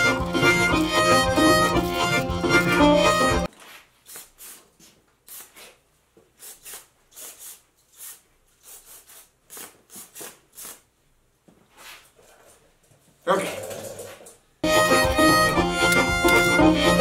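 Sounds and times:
aerosol spray hissing bursts: 0:06.4 - 0:10.8.

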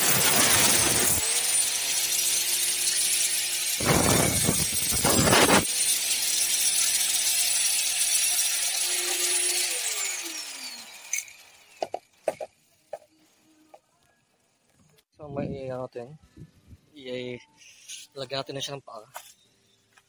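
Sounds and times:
angle grinder cutting metal tube: 0:00.0 - 0:13.0.

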